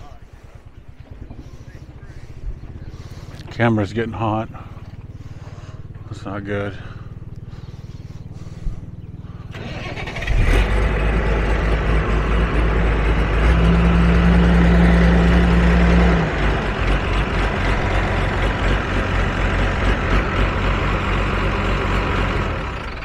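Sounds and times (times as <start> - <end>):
heavy engine humming: 0.0 - 23.0.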